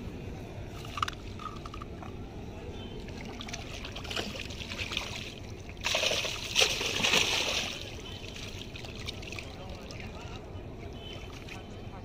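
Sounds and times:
water splashing: 3.0 - 10.4.

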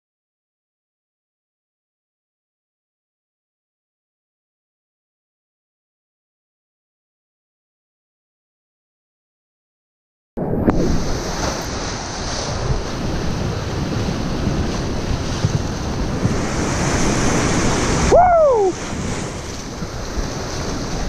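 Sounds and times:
wind buffeting microphone: 10.4 - 21.0
whitewater rushing: 10.8 - 21.0
brief cry: 18.1 - 18.8.

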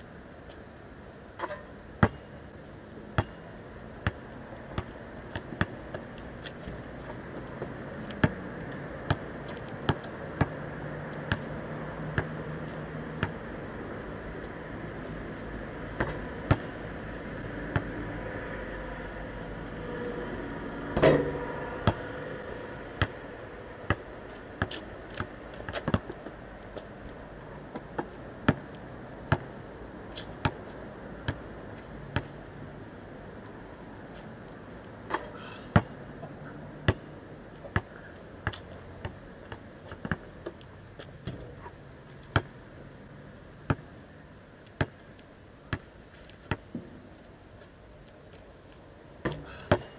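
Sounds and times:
basketball bouncing on asphalt: 1.4 - 2.3, 3.2 - 3.4, 4.0 - 13.5, 16.0 - 16.8, 17.4 - 18.0, 21.0 - 22.4, 23.0 - 23.2, 23.8 - 29.5, 30.2 - 31.5, 32.1 - 32.4, 35.1 - 36.0, 36.8 - 41.5, 42.1 - 42.6, 43.6 - 43.9, 44.6 - 45.1, 45.7 - 47.0, 49.2 - 49.9.

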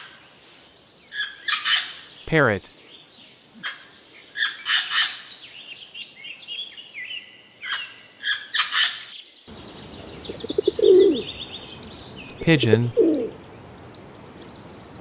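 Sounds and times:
small birds chirping: 0.0 - 15.0
pigeon cooing: 10.3 - 11.3, 12.7 - 13.4.

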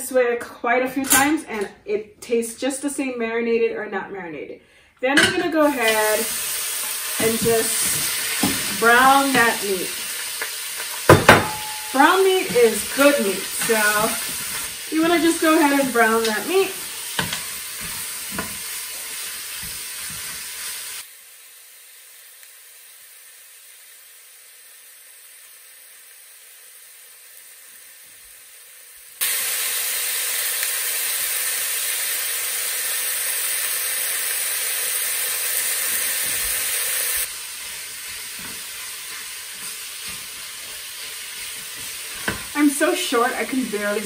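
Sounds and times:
beef sizzling in a pot: 5.2 - 44.0
spoon stirring and scraping: 10.2 - 20.4, 37.6 - 42.5.

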